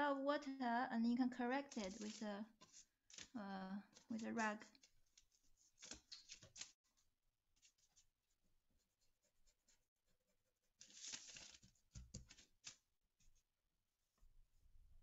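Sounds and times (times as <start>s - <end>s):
brush and rag rubbing paper: 1.6s - 2.9s, 4.1s - 11.7s.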